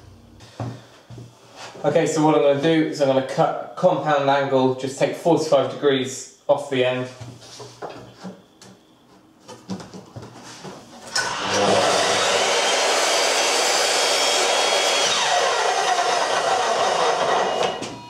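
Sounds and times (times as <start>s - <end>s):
mitre saw cutting wood: 11.1s - 17.9s.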